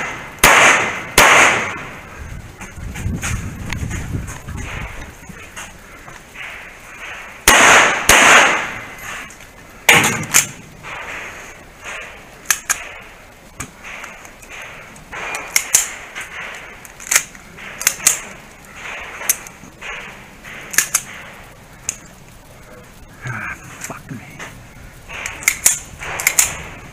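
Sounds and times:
quiet sharp clicks: 23.8 - 26.7.

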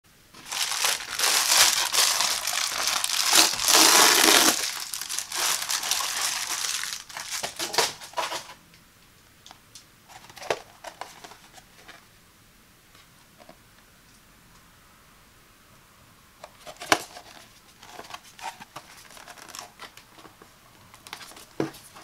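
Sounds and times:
plastic mailer crinkling: 0.4 - 8.5.

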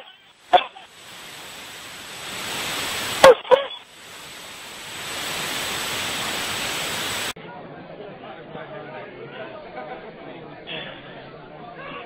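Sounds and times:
steady hiss: 0.0 - 7.4.

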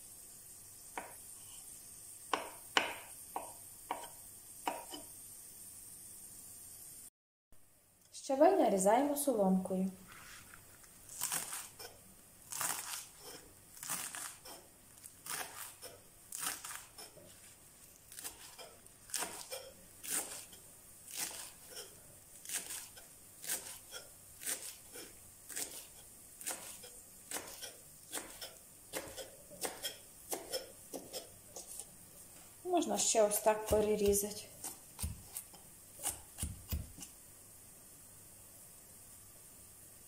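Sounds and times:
knife tapping wooden board: 2.3 - 5.0, 36.0 - 37.1
knife slicing leaves: 11.1 - 31.9, 33.2 - 37.2.

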